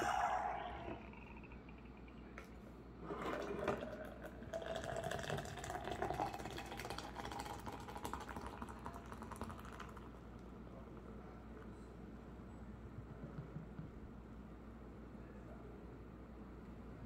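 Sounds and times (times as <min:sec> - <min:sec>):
cola splashing over ice: 0:03.2 - 0:10.0.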